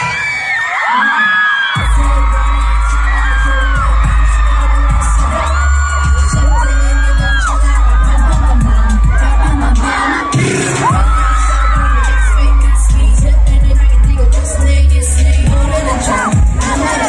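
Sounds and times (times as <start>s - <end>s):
fans screaming: 0.0s - 14.7s, 15.4s - 17.0s
sung vocals: 0.0s - 17.0s
dance track with heavy bass beat: 1.7s - 17.0s.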